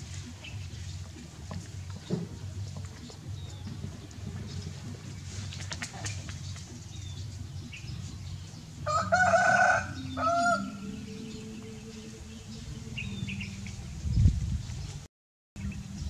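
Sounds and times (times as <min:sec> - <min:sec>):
rooster crowing: 0:08.8 - 0:12.1.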